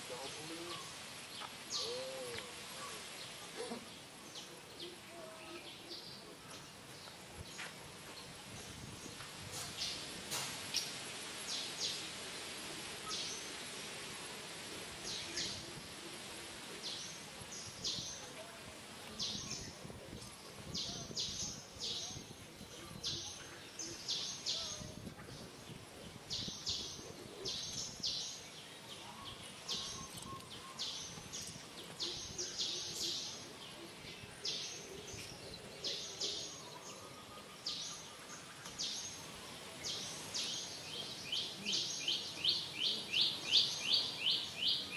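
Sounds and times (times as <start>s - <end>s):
small birds chirping: 0.0s - 12.2s, 16.6s - 44.9s
outdoor background noise: 0.0s - 44.9s.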